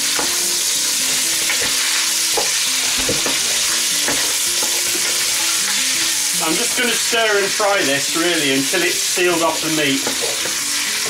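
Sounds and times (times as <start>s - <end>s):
meat sizzling in hot oil: 0.0s - 11.0s
wooden spoon knocking on pot: 1.5s - 5.2s.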